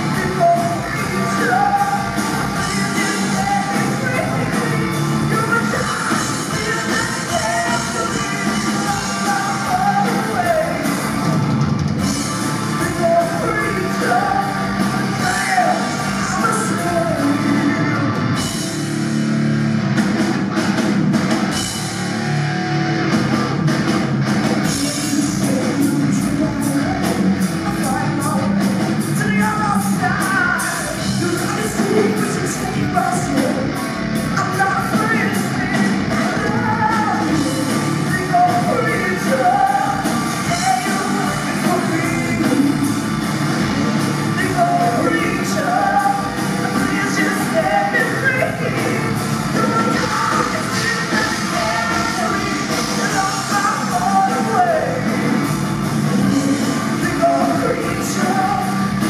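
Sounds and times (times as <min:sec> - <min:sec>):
bass guitar: 0:00.0 - 0:59.0
distorted electric guitar: 0:00.0 - 0:59.0
pounding drum kit: 0:00.0 - 0:59.0.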